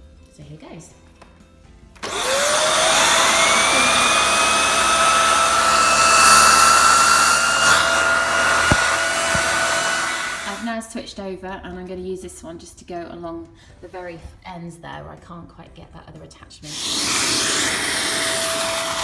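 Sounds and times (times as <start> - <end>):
vacuum cleaner motor whine: 2.0 - 10.7, 16.7 - 19.0.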